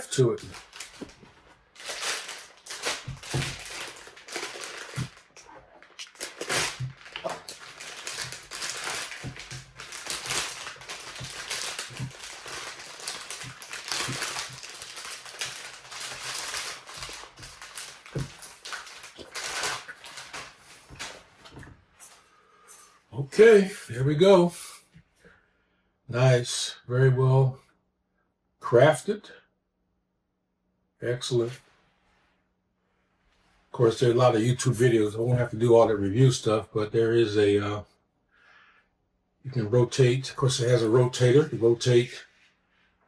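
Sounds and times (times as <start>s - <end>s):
plastic wrapping crinkling: 0.0s - 21.8s.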